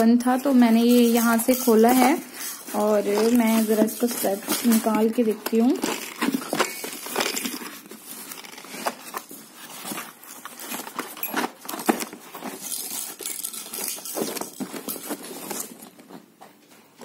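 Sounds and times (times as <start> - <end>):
cardboard flaps rustling and scraping: 2.7 - 13.0.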